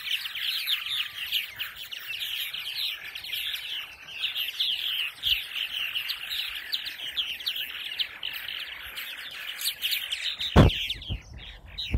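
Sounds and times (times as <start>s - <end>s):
birds chattering: 0.0s - 11.9s
short thump: 10.6s - 11.2s.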